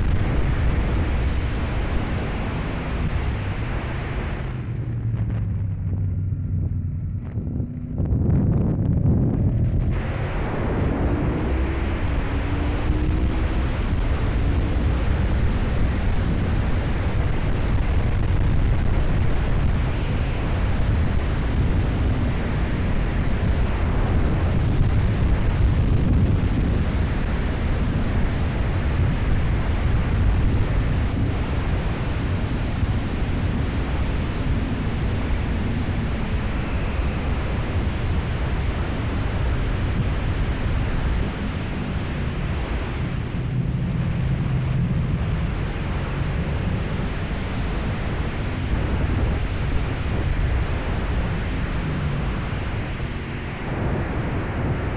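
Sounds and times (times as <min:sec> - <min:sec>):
wind buffeting microphone: 0:00.0 - 0:54.9
faint motorcycle engine: 0:03.4 - 0:09.9.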